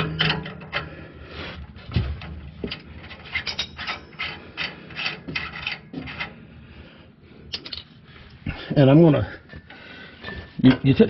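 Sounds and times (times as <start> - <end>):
metal scrapes and rubs: 0.0 - 6.5.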